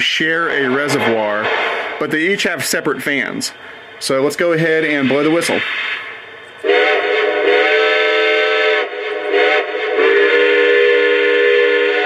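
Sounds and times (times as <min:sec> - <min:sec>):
model train steam whistle: 0:06.6 - 0:12.0.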